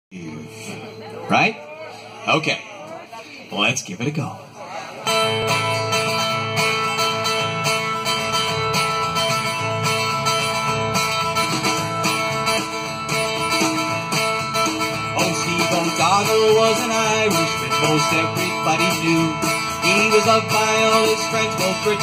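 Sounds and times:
strummed acoustic guitar: 0:04.5 - 0:22.0
electric bass guitar: 0:05.0 - 0:22.0
drum kit beat: 0:08.6 - 0:22.0.

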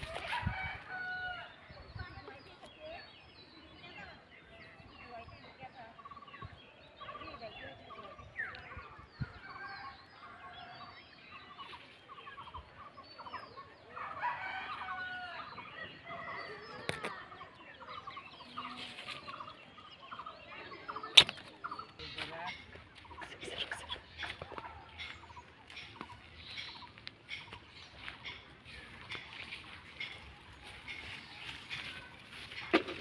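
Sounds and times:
birds calling: 0:00.0 - 0:33.0
chickens clucking: 0:15.9 - 0:33.0.

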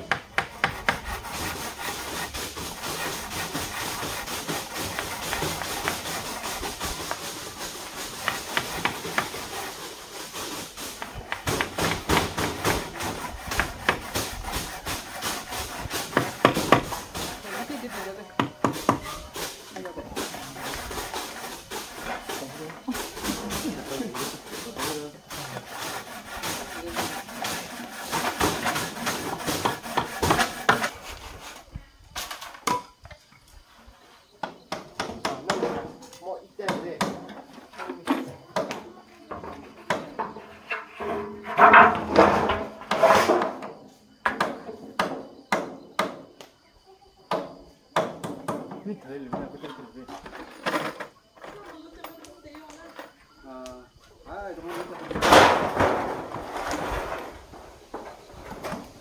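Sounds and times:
hand tools knocking wooden poles: 0:00.0 - 0:31.0, 0:34.4 - 0:35.9, 0:36.6 - 0:46.2
steady hiss: 0:00.0 - 0:37.1, 0:52.2 - 0:59.0
metal roofing sheets clattering: 0:01.0 - 0:31.5, 0:39.3 - 0:43.8, 0:54.5 - 0:59.0.

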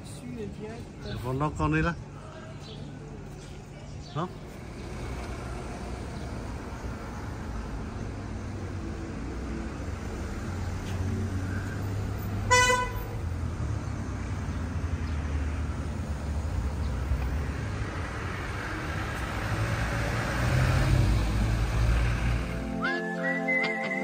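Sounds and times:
street traffic rumbling: 0:00.0 - 0:24.0
car horn toot: 0:12.5 - 0:13.1.

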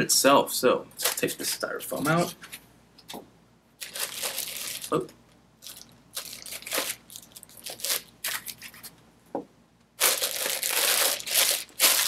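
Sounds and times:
plastic bag crinkling: 0:03.8 - 0:08.9, 0:10.0 - 0:12.0.

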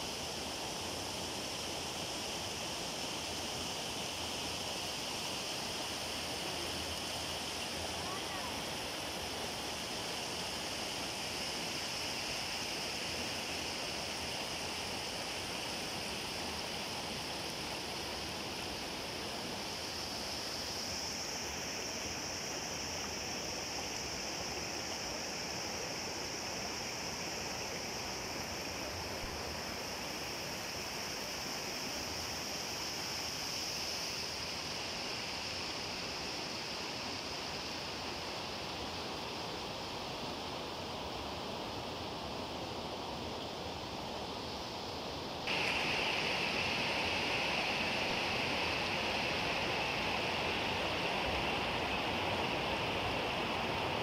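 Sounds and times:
water rushing over rocks: 0:45.5 - 0:54.0.

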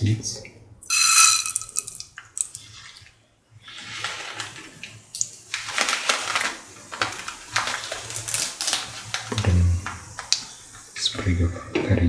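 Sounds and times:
seeds crackling and popping: 0:00.8 - 0:02.7, 0:05.1 - 0:10.7
seeds sizzling in hot oil: 0:00.8 - 0:02.8, 0:03.6 - 0:11.0.

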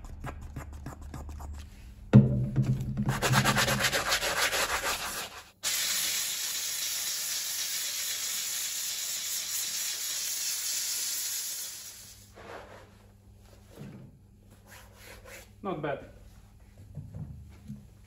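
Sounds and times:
brush scrubbing shoe sole: 0:00.0 - 0:01.7, 0:03.0 - 0:05.6
steam cleaner hissing: 0:05.6 - 0:12.3.

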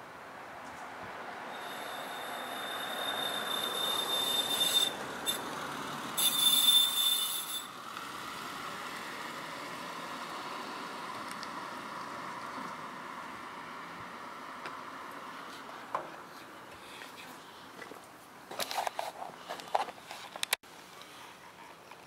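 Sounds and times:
car passing: 0:00.2 - 0:06.2, 0:07.7 - 0:15.7
high-pitched squeal: 0:01.5 - 0:07.8.

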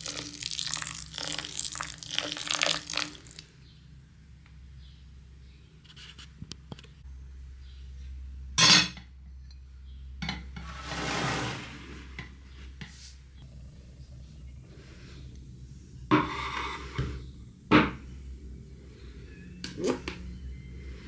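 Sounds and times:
dishes and cutlery clinking: 0:08.6 - 0:09.1
dishes clattering: 0:08.6 - 0:09.1
rushing scrape: 0:10.6 - 0:12.2.

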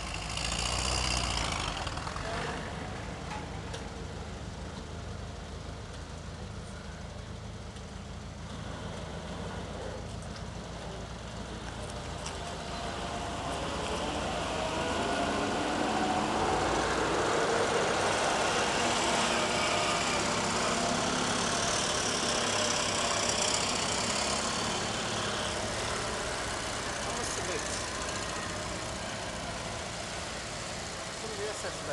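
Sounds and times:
deep armoured car engine: 0:00.0 - 0:31.9
motorcycles driving past: 0:12.2 - 0:31.9.

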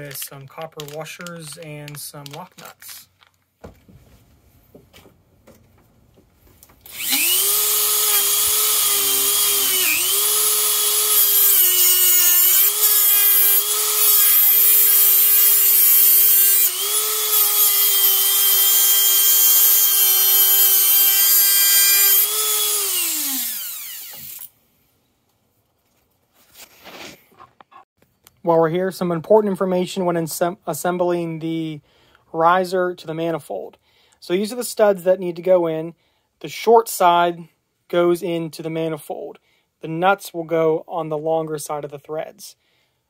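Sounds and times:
rotary tool cutting hose: 0:06.8 - 0:24.5.

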